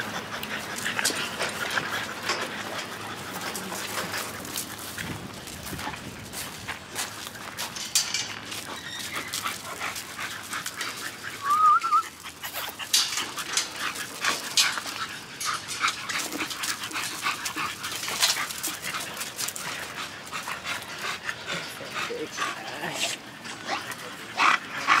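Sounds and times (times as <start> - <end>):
scuffling and clicking noises: 0.0 - 24.2
dog whining: 11.4 - 12.1.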